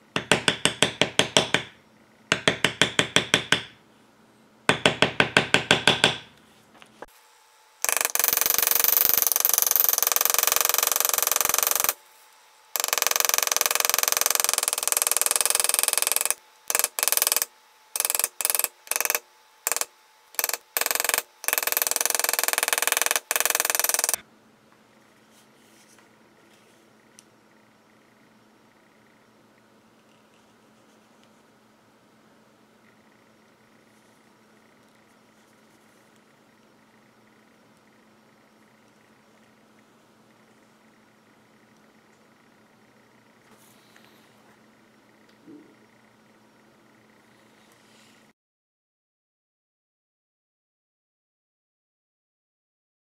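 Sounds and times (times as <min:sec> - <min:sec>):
mallet tapping metal stamping tool: 0:00.1 - 0:03.8, 0:04.7 - 0:06.3, 0:07.8 - 0:12.0, 0:12.8 - 0:24.2.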